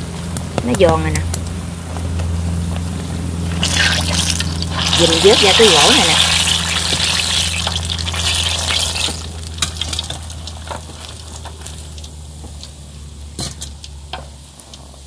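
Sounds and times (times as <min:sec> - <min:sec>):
low steady hum: 0:00.0 - 0:15.0
fritters deep-frying in hot oil: 0:03.4 - 0:15.0.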